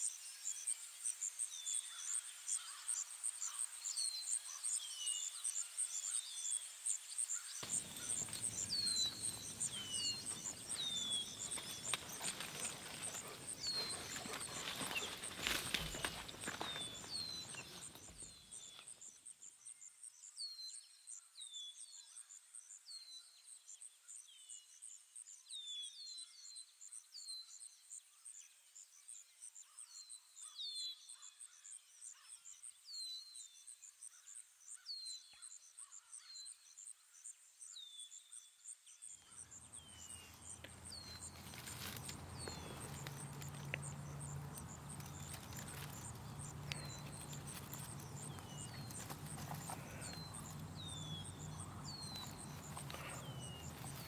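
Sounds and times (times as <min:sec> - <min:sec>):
bird chirping: 0:01.3 - 0:22.2, 0:37.6 - 0:54.0
rustling: 0:07.6 - 0:18.2, 0:40.0 - 0:54.0.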